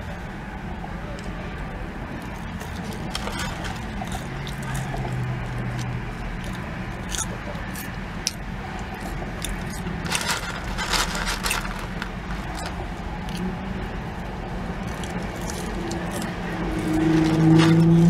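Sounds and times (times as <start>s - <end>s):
paper tray crinkling: 2.6s - 5.1s, 9.5s - 12.8s, 15.4s - 18.0s.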